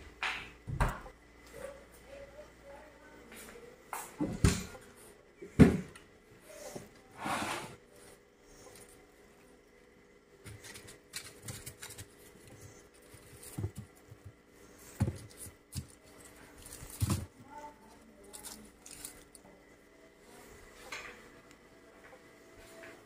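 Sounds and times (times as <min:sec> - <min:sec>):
onion skins rustling: 0:10.4 - 0:19.6
onions knocking in plastic crate: 0:16.6 - 0:17.4.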